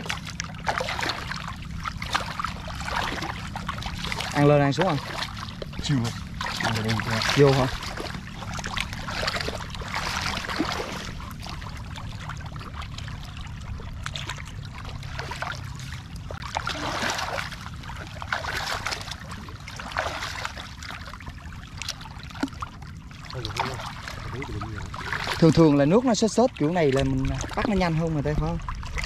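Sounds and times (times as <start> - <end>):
low rumble: 0.0 - 29.0
seawater sloshing and trickling: 0.0 - 29.0.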